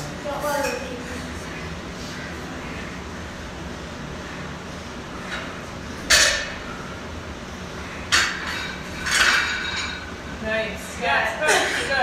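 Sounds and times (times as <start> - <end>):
steady gym hum: 0.0 - 12.0
barbell plates clanking: 5.3 - 6.8.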